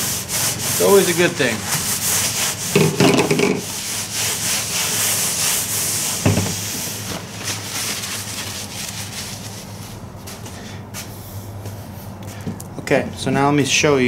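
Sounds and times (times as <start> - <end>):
rag rubbing on metal: 0.0 - 6.7
knock on workbench: 2.7 - 3.6, 6.2 - 6.6.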